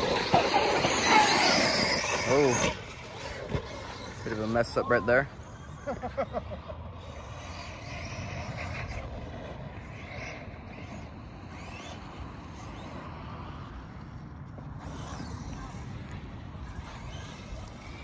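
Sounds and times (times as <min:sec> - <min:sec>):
electric motor whine: 0:00.0 - 0:05.9
outdoor rumble: 0:00.0 - 0:18.0.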